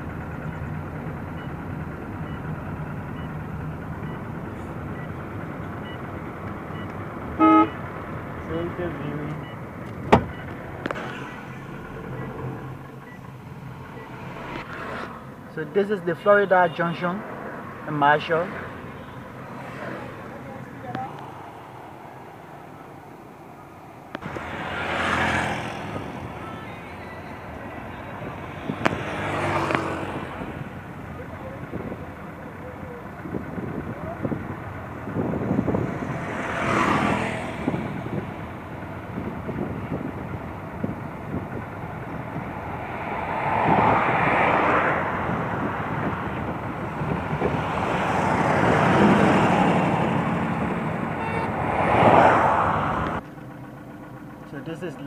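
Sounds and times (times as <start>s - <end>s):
vehicle passing: 0.0s - 54.0s
car engine and road noise: 0.0s - 55.0s
short high beeps: 10.3s - 14.6s, 51.2s - 51.5s.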